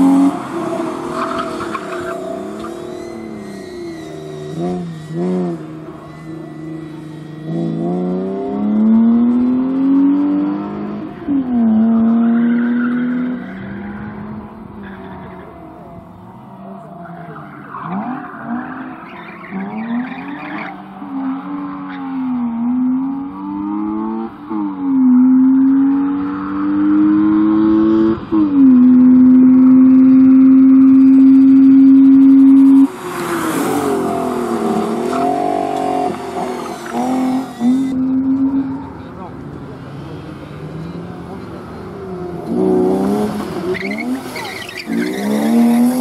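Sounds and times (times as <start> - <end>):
car engine revving: 0.0 - 46.0
tyres squealing: 43.6 - 46.0.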